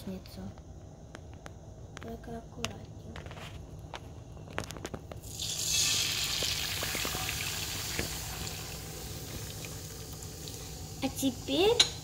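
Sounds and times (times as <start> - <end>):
egg mixture sizzling in pan: 5.2 - 12.0.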